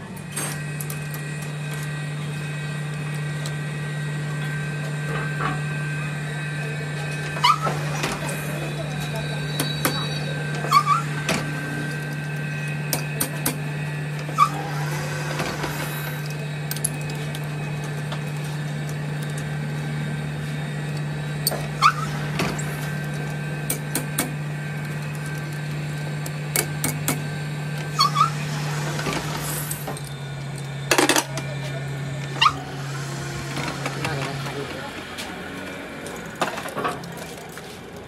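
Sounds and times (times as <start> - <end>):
machine hum: 0.0 - 38.0
short squeaks: 9.4 - 11.3, 27.9 - 30.1, 32.3 - 34.5.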